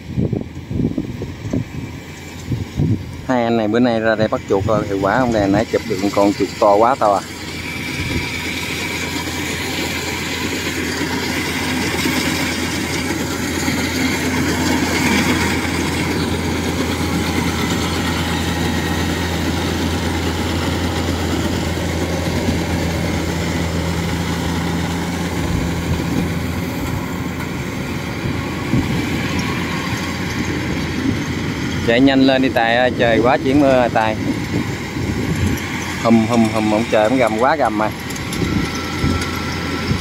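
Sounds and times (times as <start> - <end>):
combine harvester engine drone: 0.0 - 40.0.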